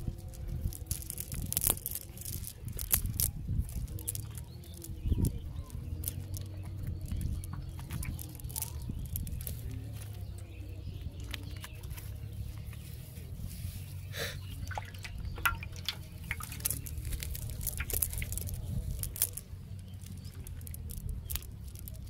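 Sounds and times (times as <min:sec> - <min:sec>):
low steady rumble: 0:00.0 - 0:22.0
wet fish handling clicks and squishes: 0:14.6 - 0:19.4.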